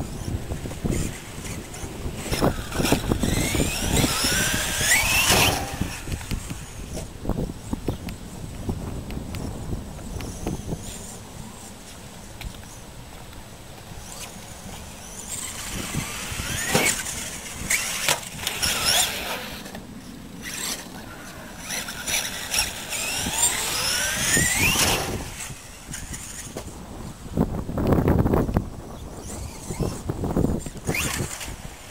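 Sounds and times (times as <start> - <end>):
electric motor whining: 0.0 - 7.2, 13.8 - 26.8, 27.8 - 31.9.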